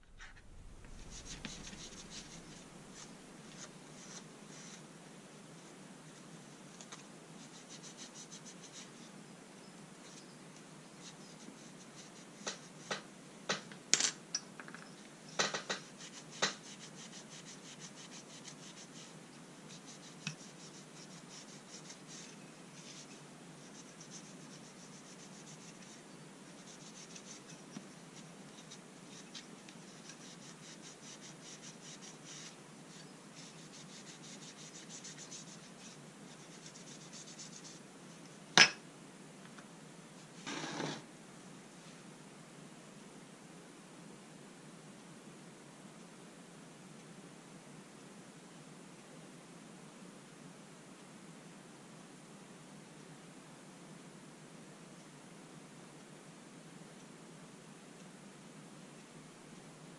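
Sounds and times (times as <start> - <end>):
wipe rubbing on metal: 0.1 - 3.2
sharp clicks and knocks: 12.5 - 15.8.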